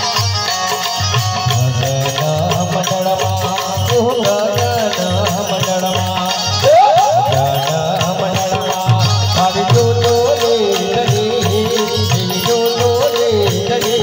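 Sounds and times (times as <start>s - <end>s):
harmonium: 0.0s - 14.0s
electronic keyboard melody: 4.0s - 13.9s.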